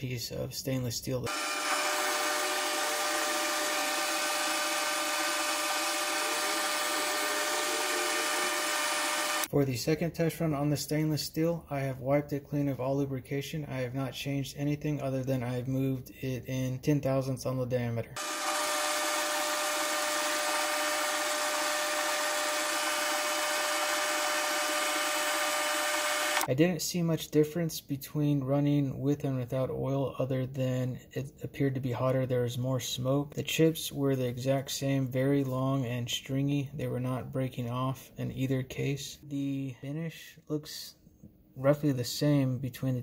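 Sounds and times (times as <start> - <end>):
metal lathe cutting steel: 1.3 - 9.5, 18.2 - 26.5.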